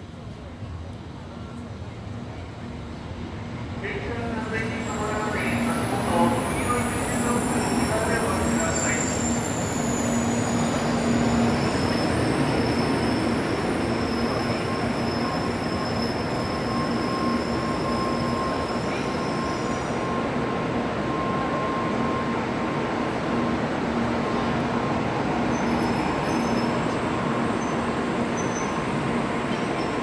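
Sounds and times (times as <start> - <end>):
high-pitched train tones: 4.0 - 23.6.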